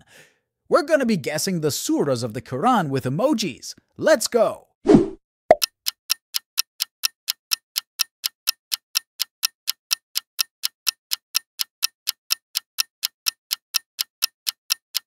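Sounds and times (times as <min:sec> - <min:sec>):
timer ticking: 0:05.5 - 0:15.0.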